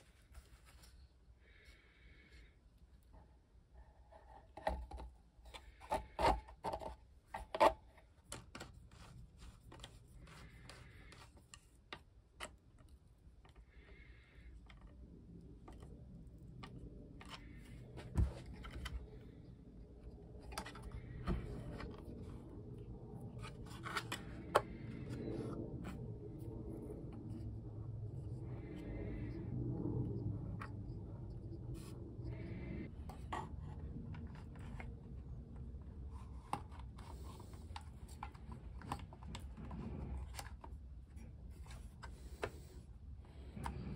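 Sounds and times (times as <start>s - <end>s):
low steady hum: 0.0s - 43.9s
plastic rubbing and scraping: 4.1s - 43.9s.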